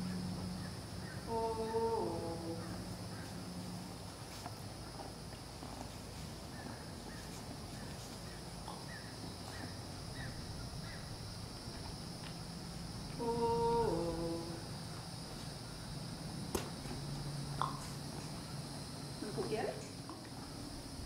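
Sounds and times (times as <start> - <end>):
high insect drone: 0.0 - 21.0
woman humming: 1.2 - 2.8, 13.2 - 14.8.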